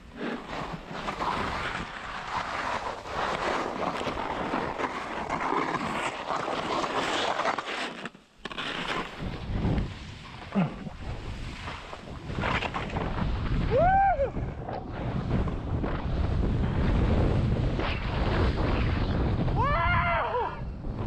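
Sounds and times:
skis scraping on snow: 0.0s - 13.8s, 14.5s - 19.5s
wind noise on microphone: 8.9s - 21.0s.

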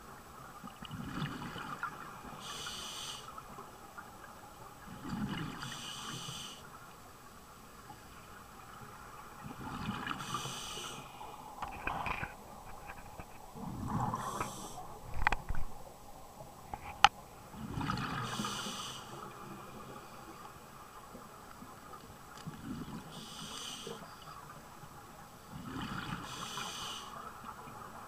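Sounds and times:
diver breathing through regulator: 2.4s - 3.3s, 5.6s - 6.6s, 10.2s - 11.1s, 14.0s - 14.8s, 18.2s - 19.2s, 23.1s - 24.0s, 26.2s - 27.2s.

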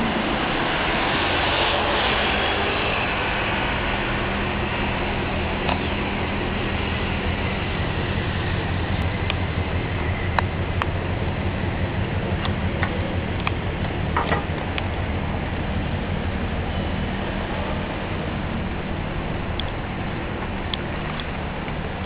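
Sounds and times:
car engine rumbling past: 0.0s - 22.0s.

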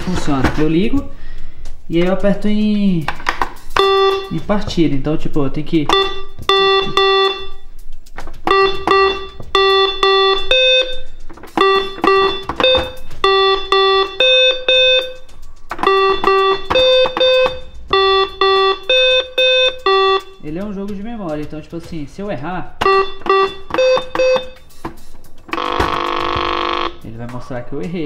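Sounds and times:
electronic toy beeps: 3.8s - 4.4s, 5.9s - 7.7s, 8.5s - 20.4s, 22.8s - 24.7s, 25.5s - 27.0s.

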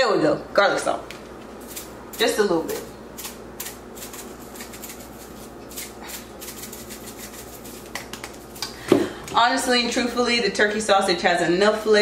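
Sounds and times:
salt shaker ticking: 3.2s - 8.7s.

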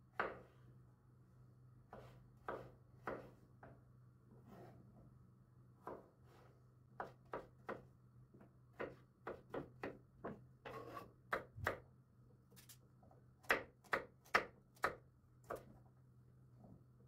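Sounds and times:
knife chopping on wooden board: 0.2s - 0.5s, 1.9s - 3.7s, 5.8s - 6.4s, 7.0s - 7.8s, 8.7s - 11.8s, 13.4s - 15.7s
knife scraping a board: 4.4s - 4.8s, 10.6s - 11.2s.

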